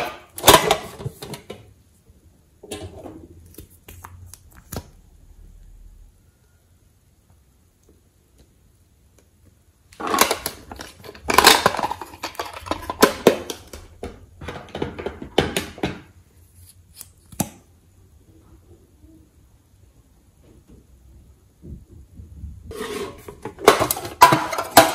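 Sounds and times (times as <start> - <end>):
plastic case scraping and rattling: 22.7 - 24.9.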